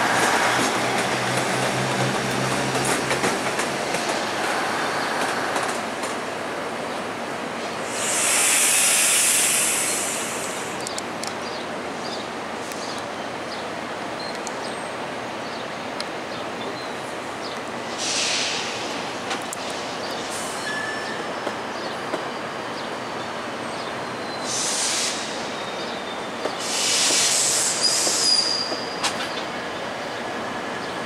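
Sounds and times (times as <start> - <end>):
train rumbling over tracks: 0.0 - 31.0
loud hiss: 7.6 - 10.8, 17.9 - 20.9, 24.4 - 25.6, 26.5 - 28.7.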